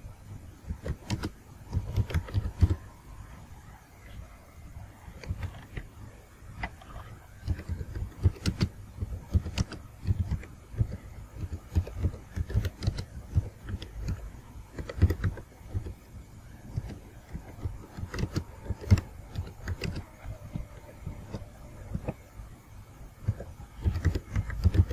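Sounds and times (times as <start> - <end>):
typing on a keyboard: 0.7 - 2.9, 7.4 - 16.0, 16.7 - 22.2, 23.2 - 24.9.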